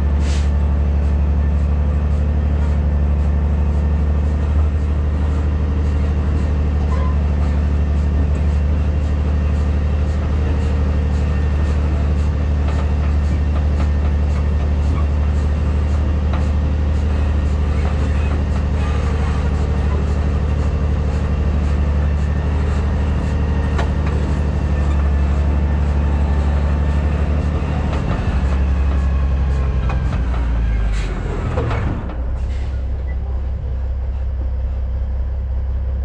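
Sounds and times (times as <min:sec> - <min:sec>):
truck engine droning: 0:00.0 - 0:36.0.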